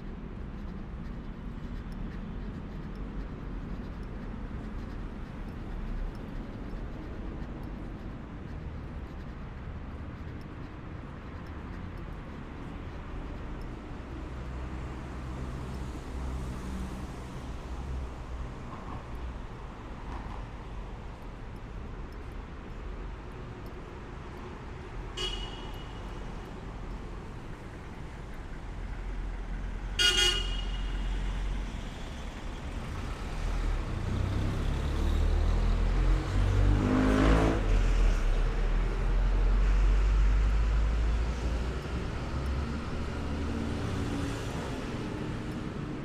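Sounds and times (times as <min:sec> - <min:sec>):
low rumble of traffic: 0:00.0 - 0:46.0
vehicle horn tooting: 0:25.2 - 0:26.0, 0:30.0 - 0:31.0.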